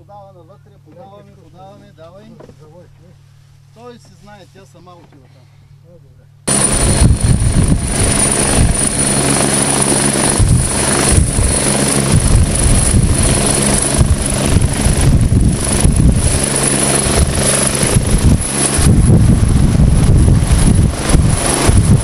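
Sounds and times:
helicopter turbine whine: 0.0 - 22.0
helicopter rotor beat: 6.4 - 22.0.

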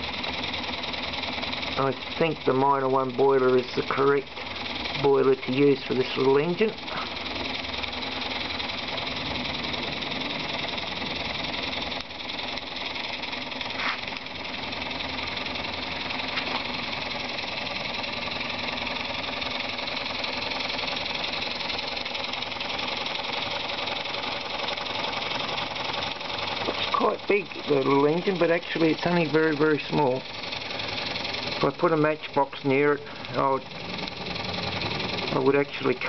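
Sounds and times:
model steam engine beating: 0.0 - 36.0
steam hissing: 0.4 - 10.7, 12.3 - 36.0.

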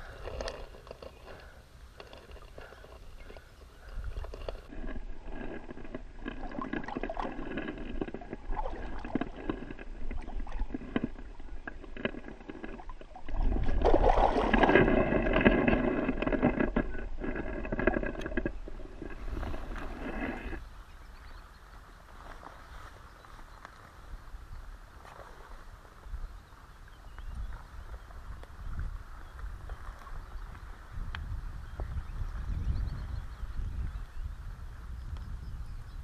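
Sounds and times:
river water sloshing and splashing: 0.0 - 18.1, 19.0 - 20.6.

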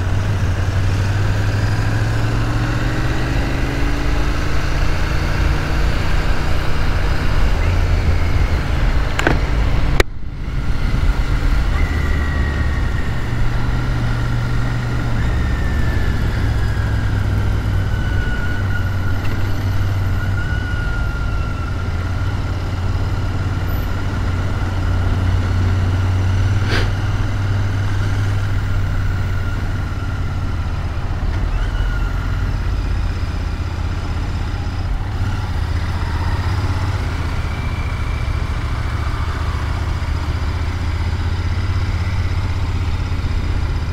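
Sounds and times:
road and wind noise: 0.0 - 43.9
sharp click: 9.2 - 9.4.

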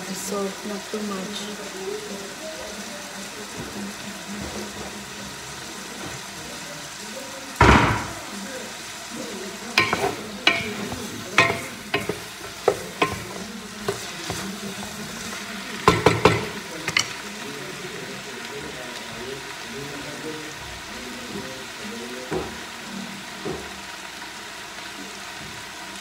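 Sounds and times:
food sizzling in a pan: 0.0 - 26.0
utensil knocking against pan: 9.8 - 15.0, 15.8 - 17.2, 22.3 - 22.6.

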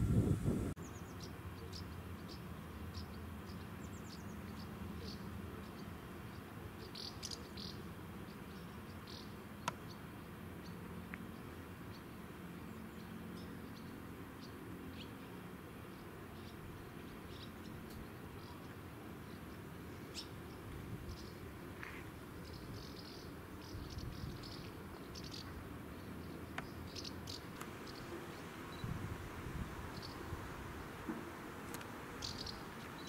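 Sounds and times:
low steady rumble: 0.0 - 0.8
insects chirping: 27.0 - 33.0.

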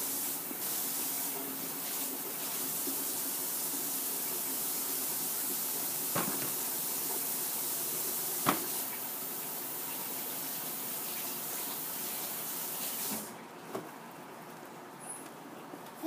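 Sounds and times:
tap running: 6.1 - 6.7, 8.4 - 8.8.

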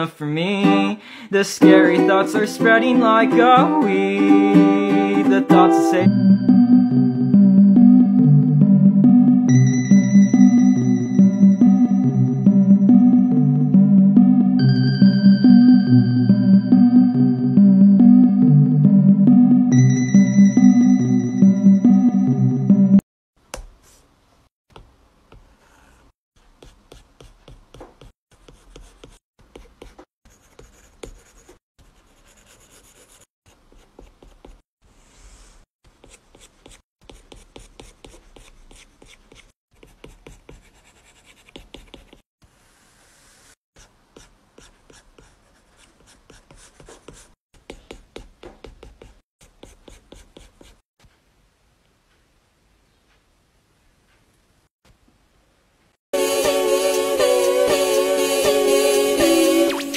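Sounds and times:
pencil scratching on paper: 25.3 - 34.6, 35.2 - 42.3, 43.2 - 50.8.

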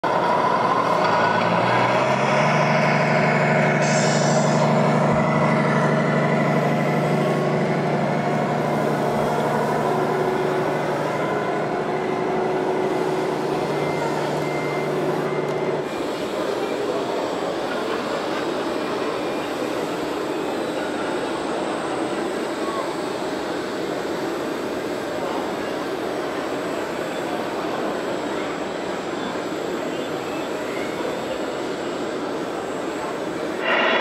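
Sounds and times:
diesel engine running sound: 0.0 - 34.0
brief hiss: 3.8 - 4.6.

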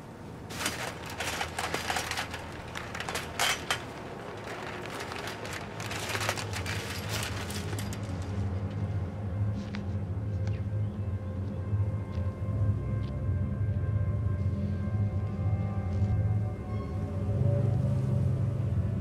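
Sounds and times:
clicks rattles and rustles: 0.5 - 8.7.

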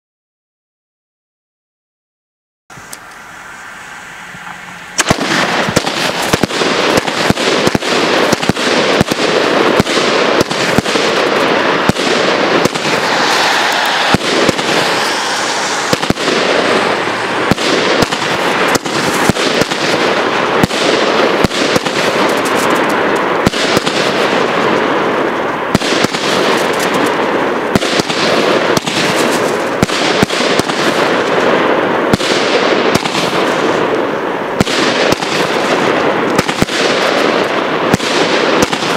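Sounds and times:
crackling hiss: 2.7 - 38.9
firework shots and bursts: 3.5 - 38.9.

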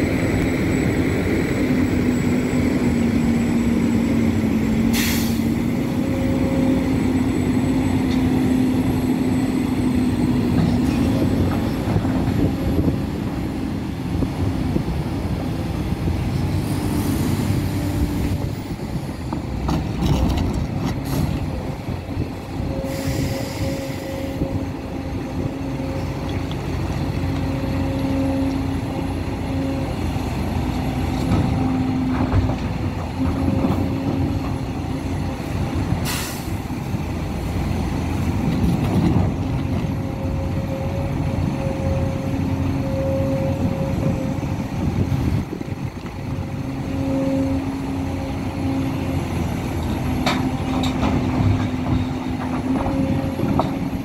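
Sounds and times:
excavator engine and hydraulics droning: 0.0 - 54.0
short hisses: 4.9 - 5.5
rock and dirt loaded into truck: 19.3 - 21.4.

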